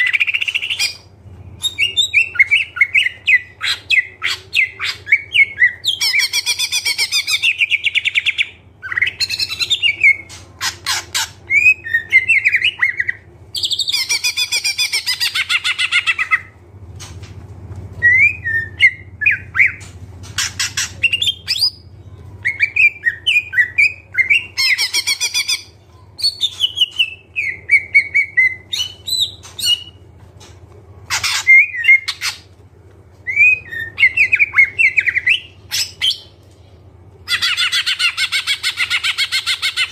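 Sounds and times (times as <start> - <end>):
bird singing trills and whistles: 0.0 - 16.5, 18.0 - 30.0, 33.3 - 36.3
faint low hum: 0.0 - 39.9.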